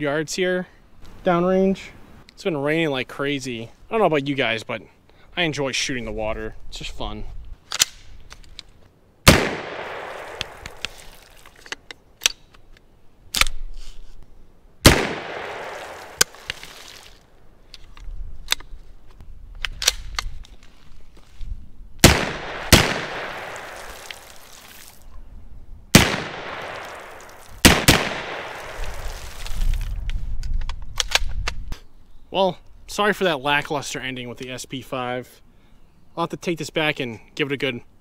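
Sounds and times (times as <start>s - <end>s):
rifle shots echoing: 9.3s - 10.8s, 14.8s - 16.4s, 22.0s - 24.3s, 25.9s - 29.1s.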